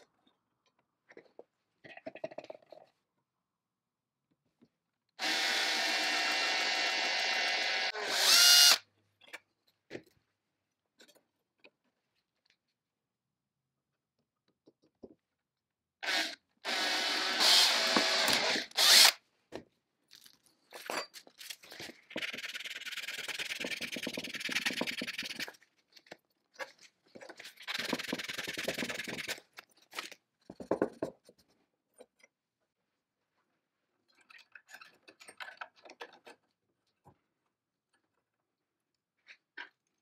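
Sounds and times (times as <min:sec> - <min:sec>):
power drill boring into brass: 0:05.2 - 0:08.8, 0:16.0 - 0:19.2.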